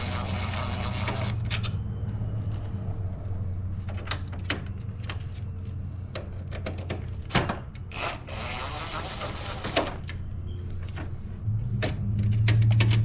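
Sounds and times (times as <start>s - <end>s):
cordless drill running: 8.0s - 9.6s.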